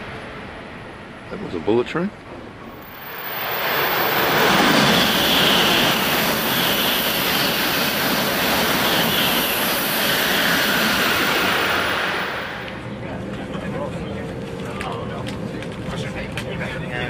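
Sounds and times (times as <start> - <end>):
train rushing past: 2.2 - 13.2.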